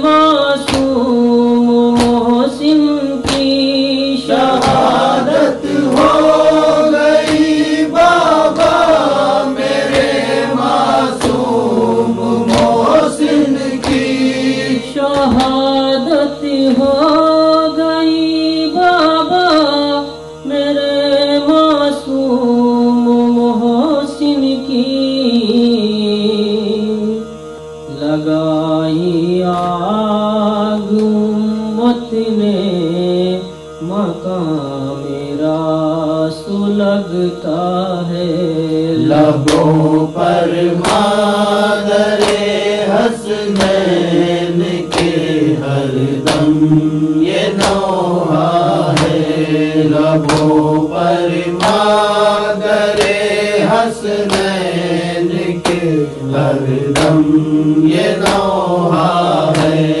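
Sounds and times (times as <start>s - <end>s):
voices chanting a slow lament: 0.0s - 60.0s
sharp percussive strokes: 3.2s - 15.7s, 39.0s - 56.0s, 56.9s - 60.0s.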